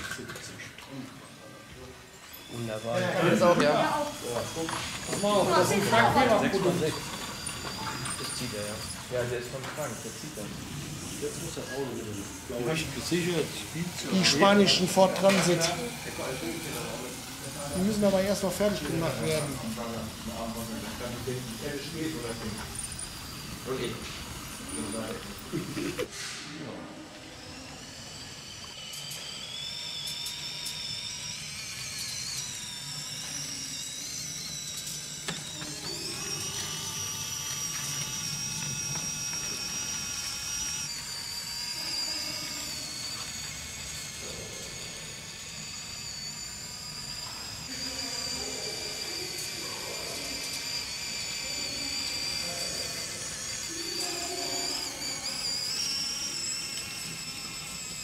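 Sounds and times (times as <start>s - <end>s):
high-pitched electric motor whine: 0.0s - 58.0s.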